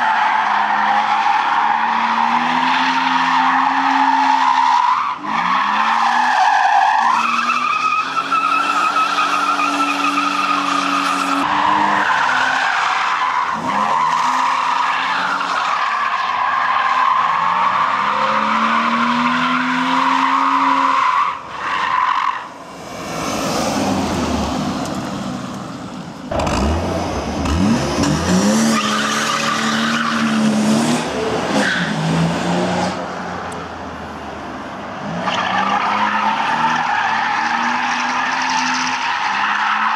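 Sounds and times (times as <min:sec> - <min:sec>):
car engine revving: 0:22.8 - 0:33.1.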